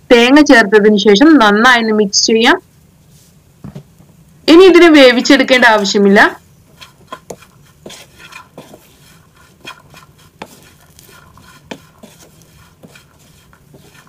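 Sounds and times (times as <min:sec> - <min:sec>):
wooden spatula stirring in pan: 0:05.5 - 0:14.0
spatula knocking against pan: 0:06.8 - 0:08.9.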